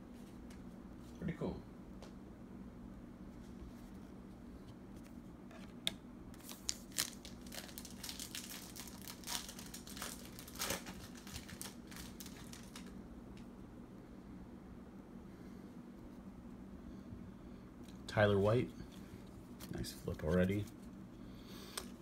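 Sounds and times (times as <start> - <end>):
wrapper tearing and crinkling: 6.4 - 13.0.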